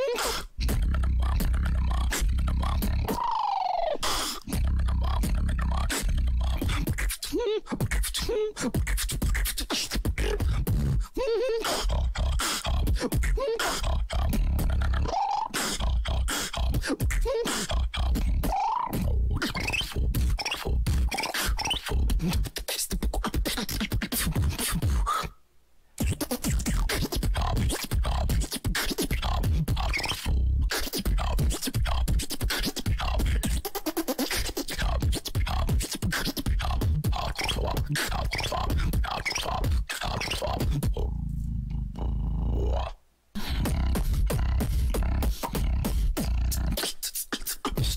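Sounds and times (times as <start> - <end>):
beatboxing into a microphone: 0.0 - 25.4, 26.0 - 47.9
heavy deep bass: 0.6 - 3.1, 4.5 - 7.0, 14.0 - 15.1, 43.6 - 46.8.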